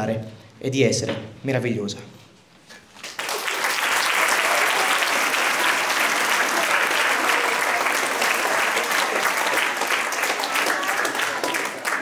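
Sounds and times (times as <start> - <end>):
children applauding: 3.0 - 12.0.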